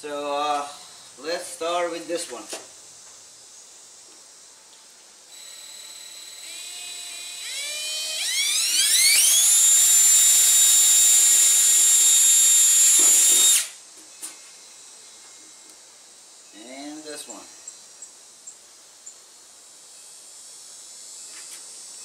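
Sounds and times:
power drill drilling sheet metal: 5.3s - 13.8s.

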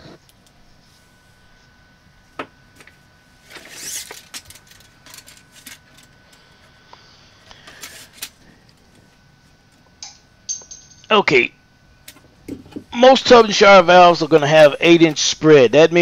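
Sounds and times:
faint high whine: 0.0s - 16.0s
tape measure blade sliding: 3.6s - 4.2s.

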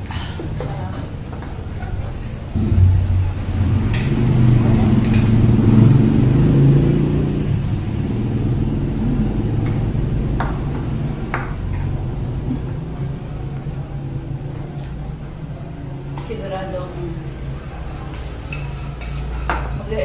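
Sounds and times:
low steady rumble: 2.4s - 18.0s
cutlery clinking against dishes: 18.0s - 19.9s.

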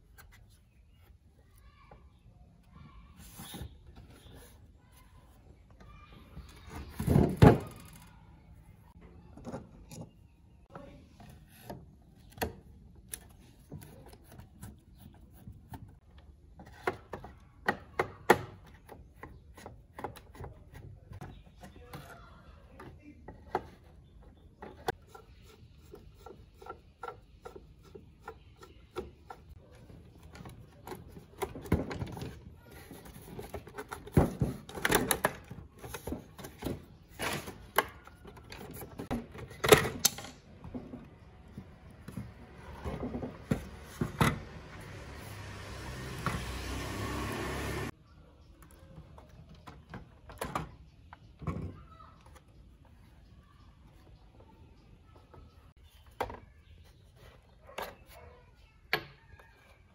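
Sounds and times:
plastic parts clicking and knocking: 5.8s - 8.2s, 15.6s - 44.5s, 48.6s - 52.9s
plastic clatter and rubbing: 29.0s - 44.6s.

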